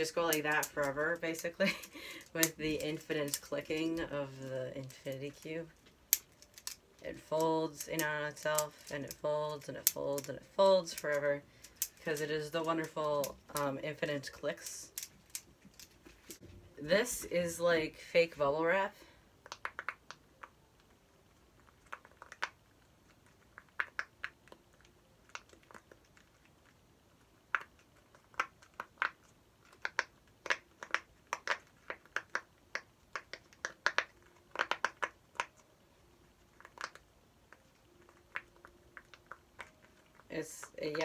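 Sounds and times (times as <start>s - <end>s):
fidget toy bubbles popping: 19.4s - 20.6s, 23.4s - 25.9s, 27.5s - 35.6s.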